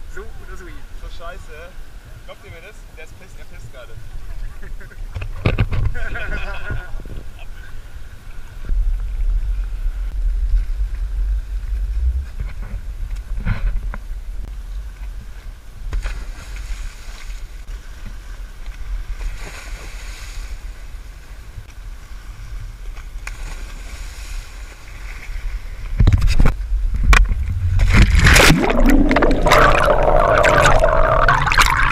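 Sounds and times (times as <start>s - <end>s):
low wind-like rumble: 3.5s - 15.9s, 24.4s - 31.9s
water splashing and bubbling: 27.2s - 31.9s.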